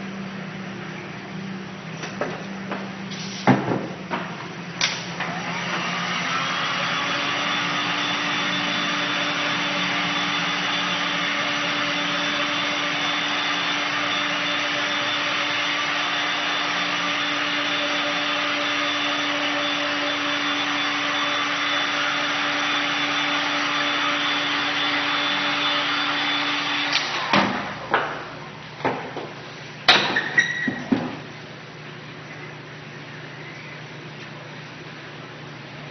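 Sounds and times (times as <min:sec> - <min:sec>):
heat gun blowing air: 0:04.9 - 0:27.4.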